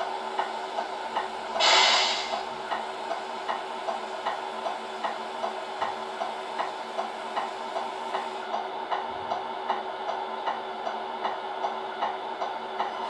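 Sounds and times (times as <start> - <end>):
hydraulic mechanical hum ticking: 0.0 - 13.0
brief hiss: 1.6 - 2.5.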